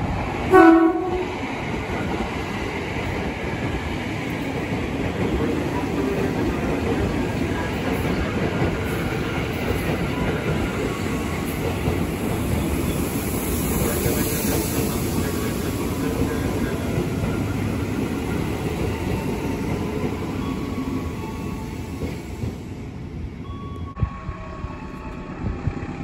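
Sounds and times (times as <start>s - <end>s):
electric train passing: 0.0s - 26.0s
wheels rumbling on rails: 23.6s - 26.0s.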